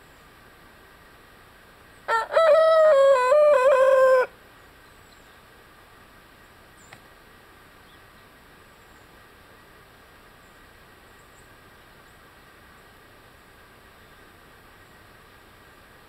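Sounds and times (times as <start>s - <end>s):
rooster crowing: 2.1s - 4.3s.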